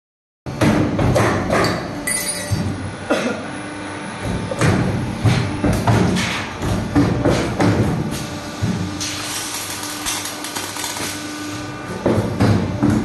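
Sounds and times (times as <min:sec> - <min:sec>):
machine knocks and thuds: 0:04.2 - 0:09.0, 0:11.9 - 0:13.0.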